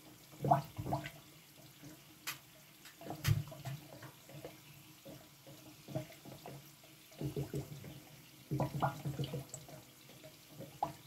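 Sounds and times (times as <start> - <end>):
molten wax bubbling and popping: 7.2 - 9.7.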